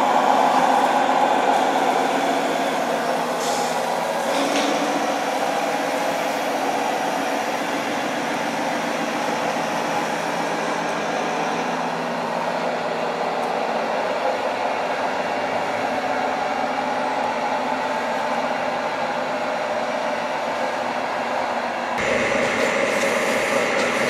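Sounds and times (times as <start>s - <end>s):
model truck whirring drone: 0.0s - 24.0s.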